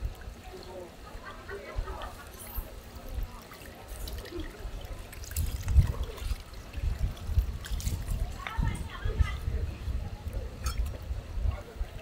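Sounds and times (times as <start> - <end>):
water from hose splattering: 2.2 - 9.0.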